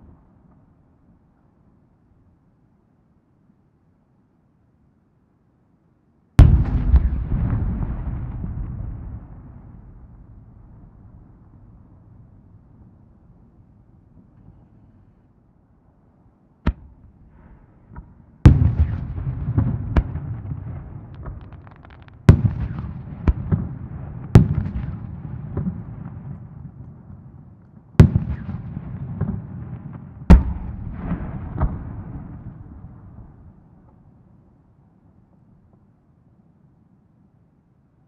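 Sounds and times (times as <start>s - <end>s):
firework shells bursting: 21.0s - 23.4s.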